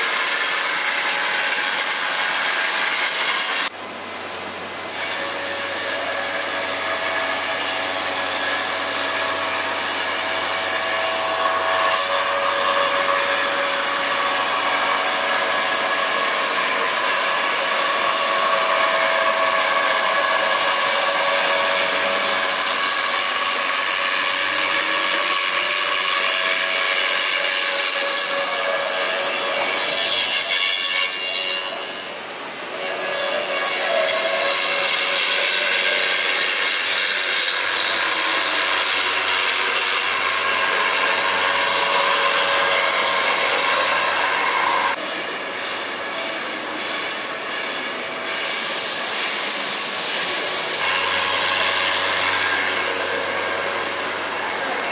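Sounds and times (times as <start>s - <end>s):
router spindle high-pitched whine: 4.8s - 54.9s
cutter hissing through foam: 46.7s - 54.9s.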